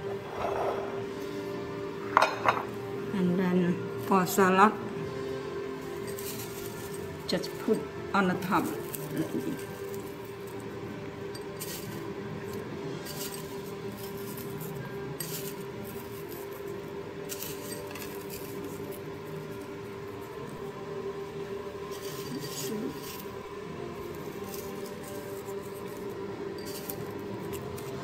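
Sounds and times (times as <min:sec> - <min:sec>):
fried shallots crackling: 0:05.7 - 0:20.7, 0:21.3 - 0:28.0.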